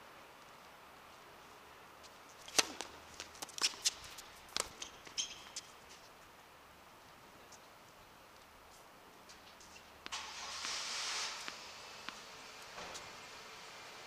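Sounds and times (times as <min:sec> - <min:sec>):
racket striking tennis ball: 0:02.5 - 0:05.6
ball bouncing: 0:02.5 - 0:05.7
sneaker squeak: 0:04.6 - 0:05.9.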